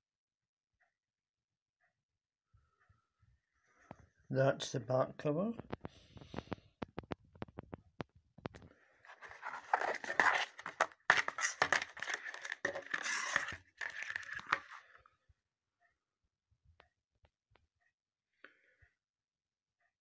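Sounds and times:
plastic case scraping and rustling: 9.0s - 14.8s.

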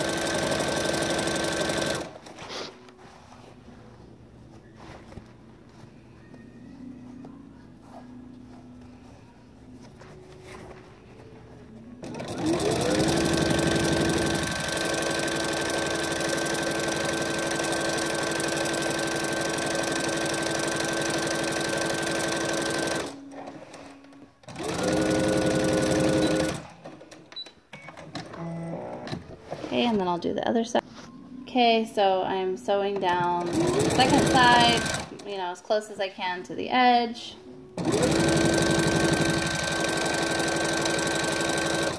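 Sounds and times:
sewing machine motor whining: 0.0s - 2.1s, 12.0s - 23.4s, 24.4s - 26.7s, 33.2s - 35.2s, 37.8s - 41.9s.

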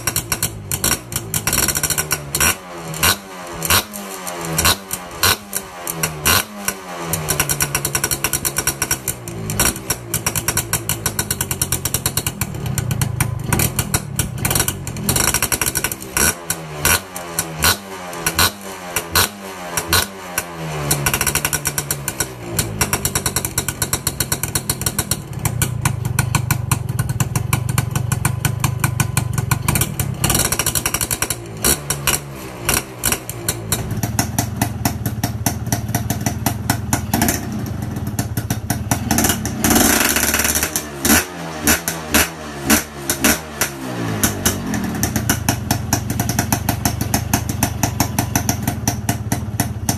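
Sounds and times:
two-stroke motorcycle engine revving: 0.0s - 49.9s
popping engine idle: 22.6s - 39.5s, 44.4s - 49.9s.

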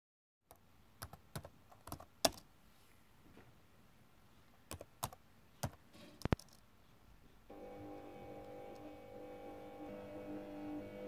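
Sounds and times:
keyboard typing: 0.5s - 2.5s, 4.7s - 6.6s.

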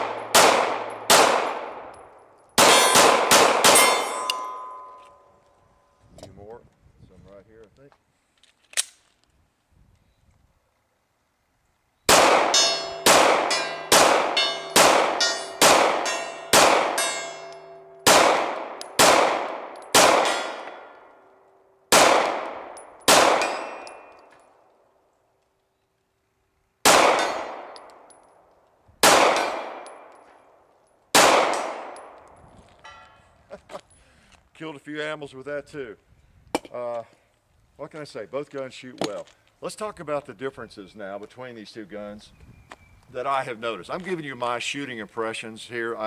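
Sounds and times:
pistol shots: 0.0s - 4.9s, 12.1s - 21.1s, 21.9s - 24.2s, 26.8s - 28.1s, 29.0s - 30.2s, 31.1s - 32.3s
steel target clanging: 3.7s - 5.3s, 12.5s - 18.0s.

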